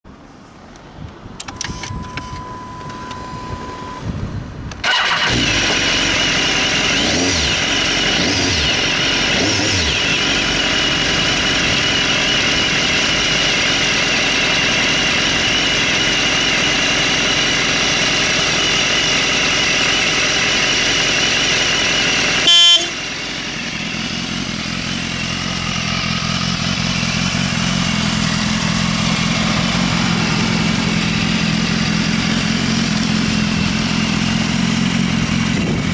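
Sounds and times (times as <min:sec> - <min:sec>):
motorcycle engine revving and idling: 0:04.8 - 0:35.9
very loud blast: 0:22.4 - 0:23.0.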